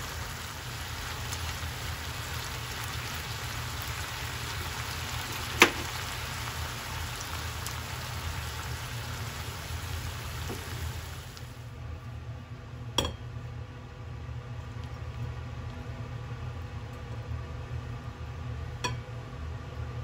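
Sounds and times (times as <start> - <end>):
stir-fry sizzling in a pan: 0.0 - 11.8.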